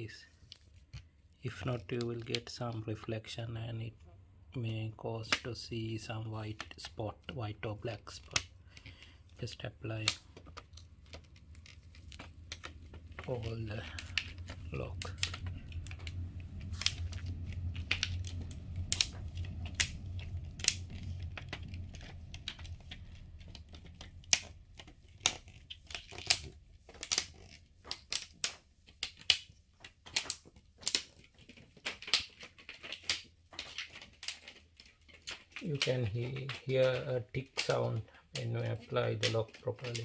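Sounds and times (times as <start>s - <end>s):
low hum: 8.6s - 25.6s.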